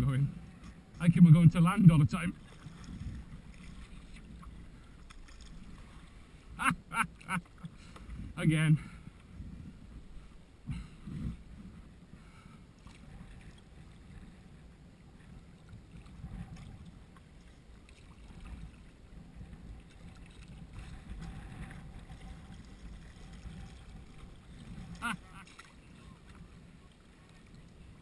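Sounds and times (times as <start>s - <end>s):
wind buffeting microphone: 0.0s - 6.5s, 8.0s - 12.3s, 13.0s - 17.2s, 18.2s - 25.1s
paddle splashing in water: 2.3s - 8.2s, 12.2s - 14.6s, 15.2s - 28.0s.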